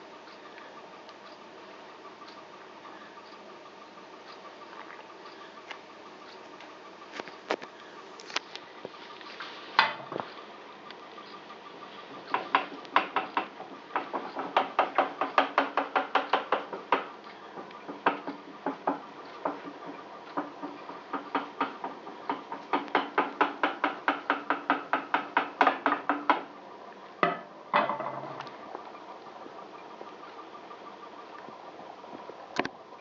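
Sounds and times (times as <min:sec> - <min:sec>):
loud knocks: 0:12.3 - 0:17.1, 0:17.7 - 0:26.5.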